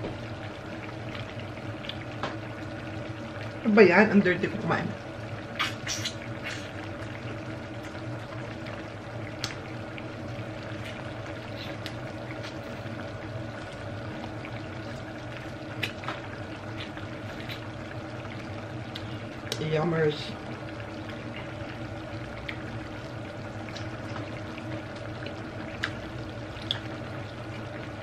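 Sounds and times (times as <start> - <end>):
stew bubbling in a pan: 0.0 - 28.0
person eating with hands: 16.8 - 17.7.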